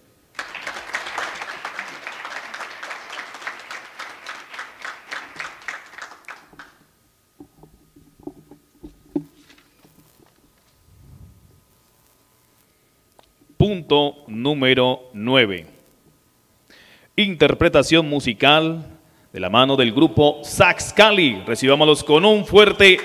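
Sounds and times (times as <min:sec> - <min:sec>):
audience applause: 0:00.3 - 0:06.8, 0:22.8 - 0:23.0.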